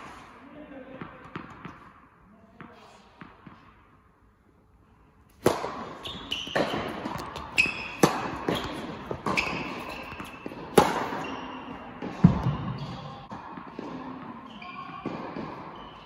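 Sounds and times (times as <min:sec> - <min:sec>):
tennis ball bouncing: 0:00.9 - 0:02.0, 0:05.3 - 0:16.0
tennis racket hitting ball: 0:05.3 - 0:16.0.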